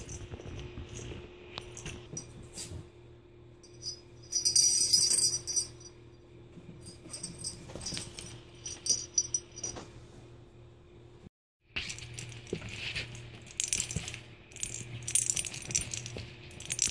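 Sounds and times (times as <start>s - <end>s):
faint steady hum: 0.0s - 16.9s
small bell jingling: 3.6s - 6.0s, 6.8s - 9.8s.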